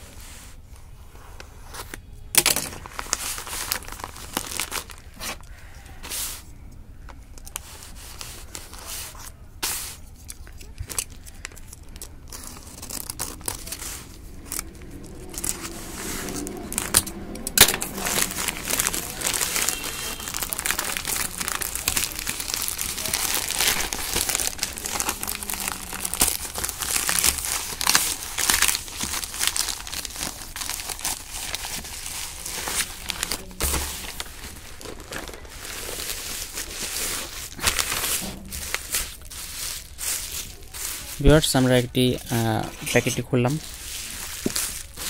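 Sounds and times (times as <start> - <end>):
plastic bag crinkling: 1.6 - 45.0
plastic bag tearing: 1.7 - 6.5, 7.3 - 45.0.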